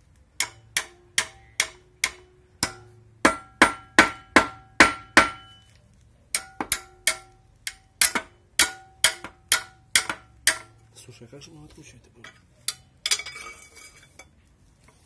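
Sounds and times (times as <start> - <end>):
hammer striking steel: 0.4 - 5.6, 6.3 - 10.9.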